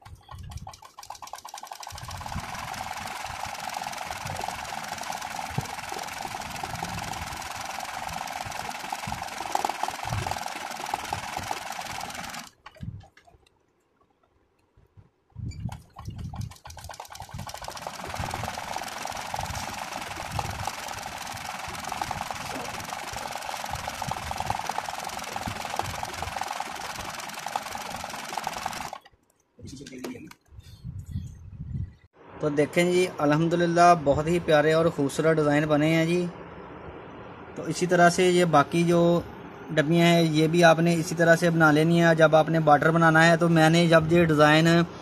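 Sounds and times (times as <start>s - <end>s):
sewing machine stitching fast: 0.0s - 13.0s, 15.6s - 29.1s.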